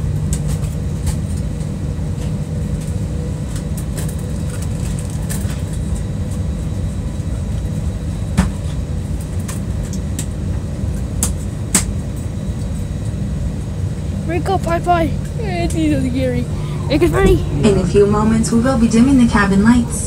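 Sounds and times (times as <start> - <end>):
jet engines rumbling in cabin: 0.0 - 20.0
faint steady hum: 11.7 - 20.0.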